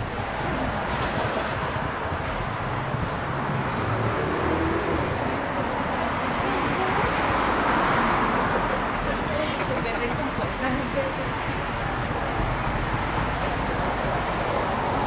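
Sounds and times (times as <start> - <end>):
car passing: 0.0 - 15.0
street traffic: 0.0 - 15.0.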